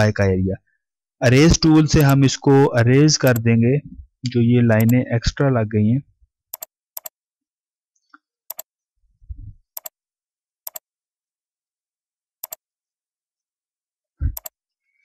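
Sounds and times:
computer mouse clicking: 2.0 - 2.2, 4.8 - 5.0, 6.5 - 7.2, 8.5 - 8.7, 9.7 - 10.0, 12.4 - 12.6, 14.3 - 14.6.

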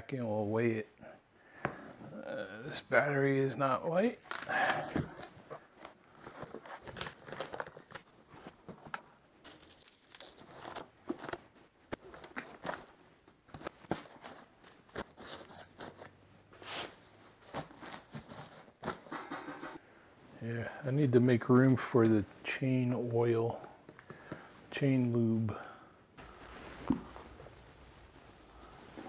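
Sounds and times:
fabric and plastic rustling: 4.2 - 19.8, 26.2 - 29.0.

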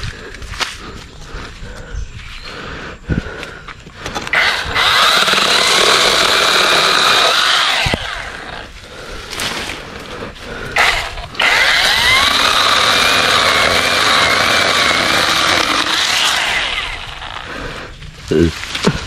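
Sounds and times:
electric chainsaw cutting branches: 4.2 - 8.7, 10.8 - 17.5.

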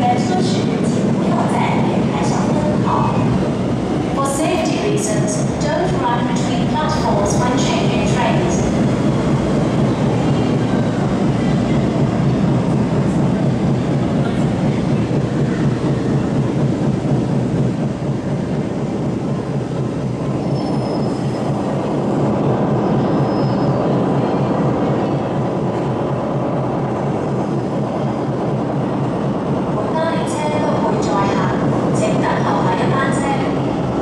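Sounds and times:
train rolling and traction noise: 0.0 - 34.0
faint high squeals: 22.8 - 24.0.

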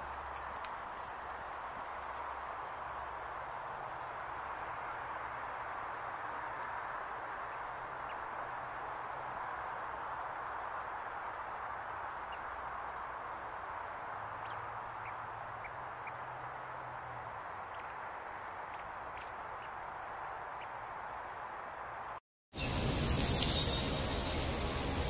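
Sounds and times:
steady background hiss: 18.3 - 25.0.

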